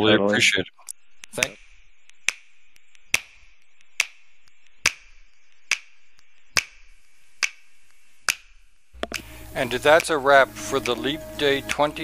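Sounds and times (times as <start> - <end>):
sharp clicks: 0.8 - 9.3
faint steady hiss: 9.0 - 12.0.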